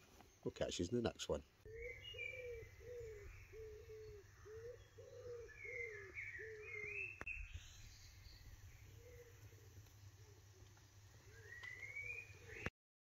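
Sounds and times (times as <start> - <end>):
small bird chirping: 0.1 - 12.7
pigeon cooing: 1.7 - 7.2, 9.0 - 12.7.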